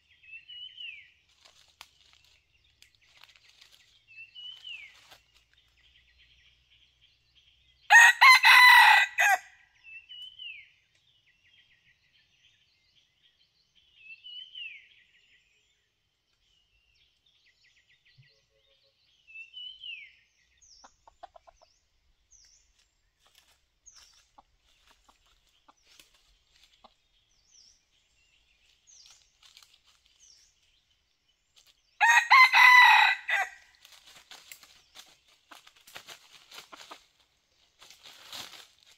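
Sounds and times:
rooster crowing: 7.9s - 9.5s, 32.0s - 33.6s.

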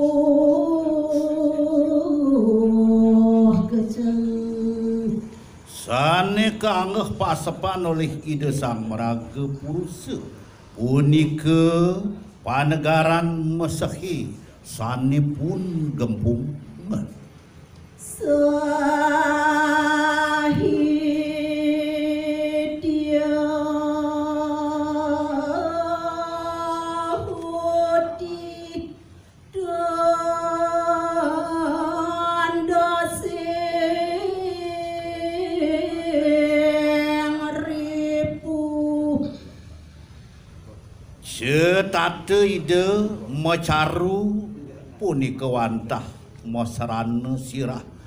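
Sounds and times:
woman chanting: 0.0s - 12.1s, 18.0s - 39.6s.

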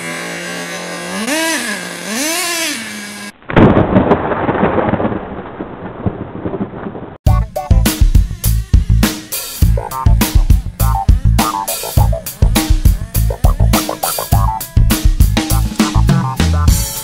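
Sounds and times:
nitro rc engine revving: 0.0s - 3.4s, 7.8s - 16.8s
loud dense noise effect: 7.3s - 17.0s
music with drum hits: 7.3s - 17.0s.

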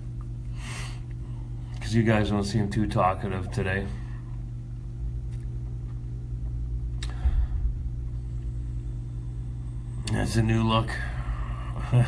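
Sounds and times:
low room hum: 0.0s - 12.0s
brief low thump: 7.1s - 8.2s.

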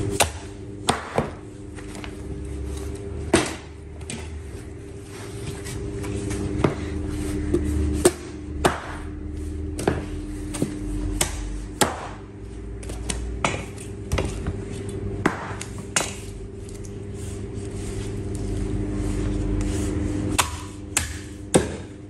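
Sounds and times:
steady low hum: 0.0s - 22.0s
knife chopping meat on wooden block: 20.3s - 21.9s.

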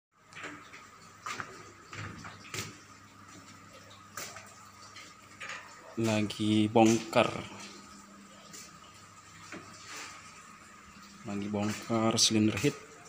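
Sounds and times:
faint knocks and clanks: 0.2s - 6.2s.

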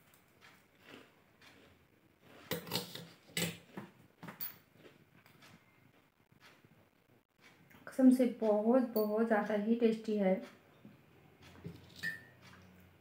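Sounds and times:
person chewing crunchy food: 0.0s - 6.6s.

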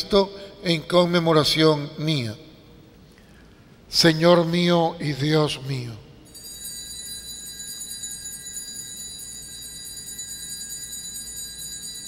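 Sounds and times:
altar bells ringing: 6.2s - 12.0s.

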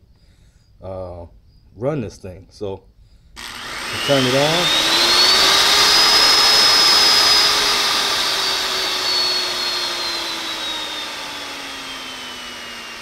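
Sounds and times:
die grinder motor whine: 3.4s - 13.0s.

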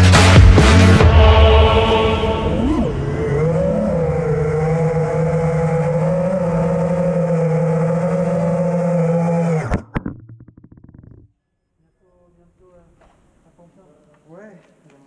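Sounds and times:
drone motors whining: 1.9s - 9.9s.

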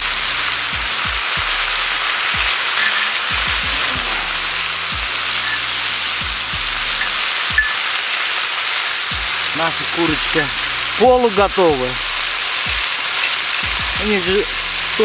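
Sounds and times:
vegetables sizzling in hot oil: 0.0s - 15.0s
metal spatula stirring: 2.6s - 3.4s.

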